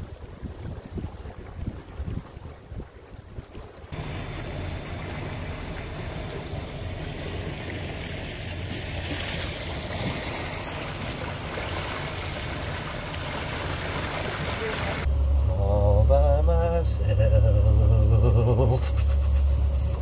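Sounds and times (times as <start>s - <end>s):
wind rumble on microphone: 0.0s - 4.1s
water rushing along boat hull: 0.0s - 20.0s.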